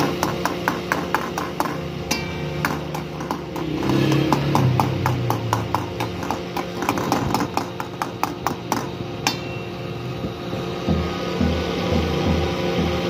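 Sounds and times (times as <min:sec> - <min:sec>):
steel ladle clinking against iron pan: 0:00.0 - 0:07.0, 0:09.2 - 0:09.7
low rhythmic thumping: 0:10.2 - 0:13.0.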